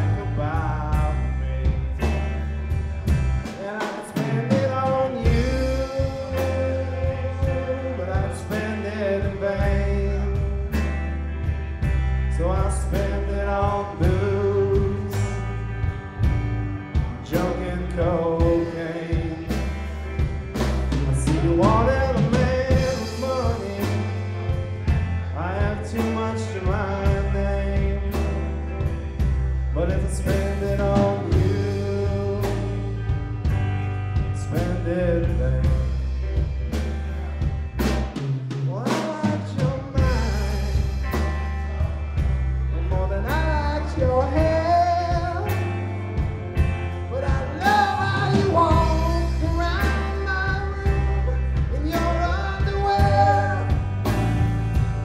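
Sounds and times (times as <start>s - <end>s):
lead vocals singing: 0.0s - 10.8s, 12.2s - 15.8s, 17.0s - 28.6s, 29.7s - 33.1s, 38.7s - 54.5s
bass guitar: 0.0s - 55.0s
drum kit: 0.0s - 55.0s
electric guitars: 0.0s - 55.0s.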